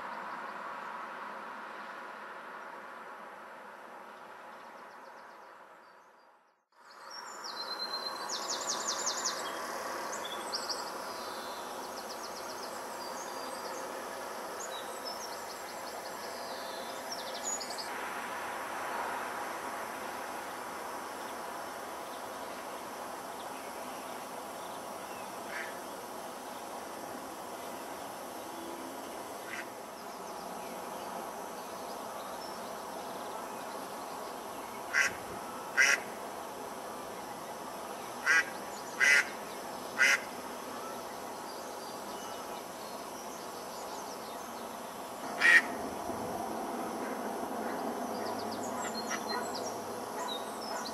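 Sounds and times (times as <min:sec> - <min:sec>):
outdoor background noise: 0:00.0 - 0:50.9
steady background noise: 0:06.8 - 0:50.9
duck quacking: 0:34.9 - 0:35.2, 0:35.8 - 0:36.1, 0:45.4 - 0:45.7
small birds chirping: 0:37.1 - 0:45.8, 0:47.0 - 0:50.9.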